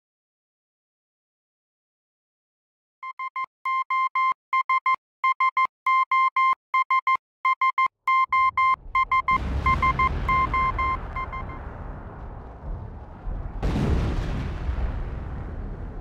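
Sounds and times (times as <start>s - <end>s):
morse code beeps: 3.0s - 11.6s
low rumble: 8.3s - 16.0s.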